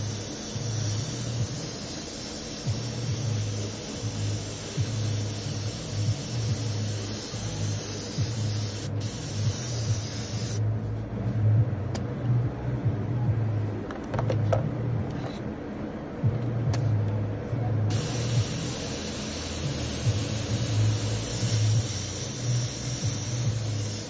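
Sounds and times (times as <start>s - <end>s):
air compressor humming and hissing: 0.0s - 11.0s, 17.8s - 24.0s.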